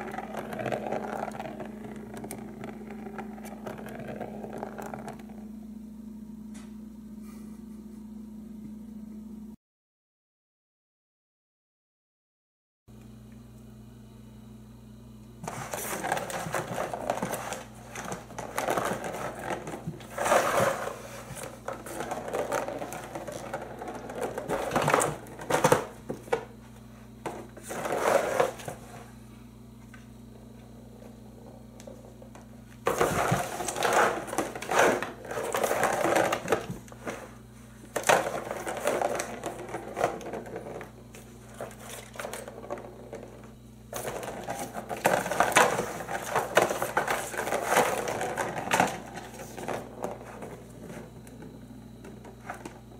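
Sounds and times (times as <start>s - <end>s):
ball rolling and rattling in plastic track: 0.0s - 5.4s, 15.4s - 26.5s, 27.2s - 28.9s, 30.9s - 52.8s.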